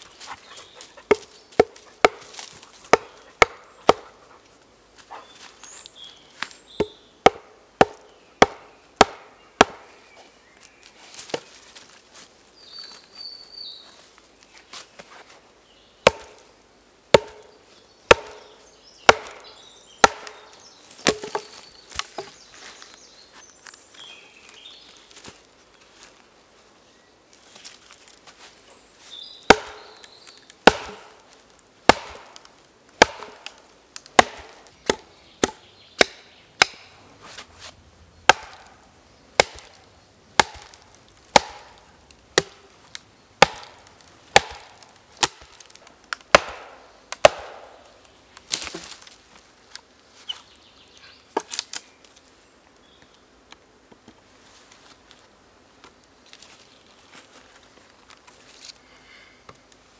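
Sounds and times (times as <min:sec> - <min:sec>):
wooden mallet striking hatchet: 0:01.1 - 0:02.3, 0:02.9 - 0:04.1, 0:06.8 - 0:09.9, 0:16.0 - 0:16.4, 0:17.1 - 0:17.5, 0:18.1 - 0:18.5, 0:19.1 - 0:20.4, 0:21.0 - 0:21.6, 0:29.5 - 0:30.0, 0:30.6 - 0:31.1, 0:31.9 - 0:32.3, 0:33.0 - 0:33.5, 0:34.2 - 0:36.9, 0:38.3 - 0:38.7, 0:39.4 - 0:39.8, 0:40.4 - 0:41.8, 0:42.4 - 0:42.6, 0:43.4 - 0:45.5, 0:46.3 - 0:47.8
wedges driven into log: 0:20.0 - 0:22.4, 0:29.5 - 0:30.0, 0:30.6 - 0:31.2, 0:33.0 - 0:38.7, 0:43.4 - 0:45.7.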